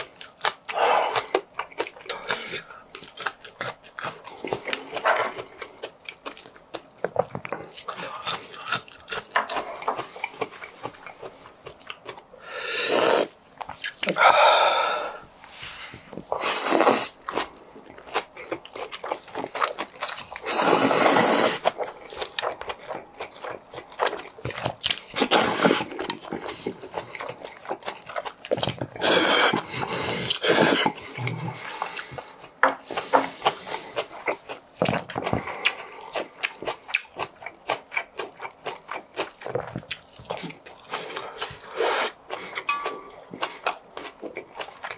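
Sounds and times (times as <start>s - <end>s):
wet chewing: 0.0s - 44.9s
noodles slurped: 20.1s - 22.5s, 24.4s - 32.2s.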